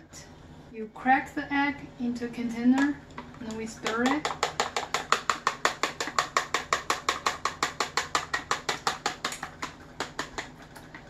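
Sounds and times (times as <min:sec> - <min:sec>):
chopsticks whisking egg: 0:03.8 - 0:11.0.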